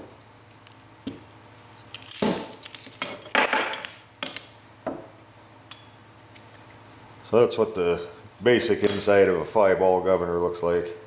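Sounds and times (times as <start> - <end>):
metal parts clinking and knocking: 1.9 - 5.1, 8.8 - 9.1.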